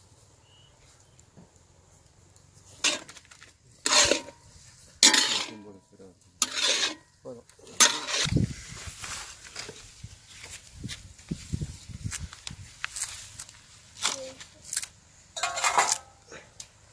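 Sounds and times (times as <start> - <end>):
iron ladle scraping pan: 2.7 - 3.2, 3.8 - 4.4, 5.0 - 5.7, 6.4 - 8.3, 15.4 - 16.2.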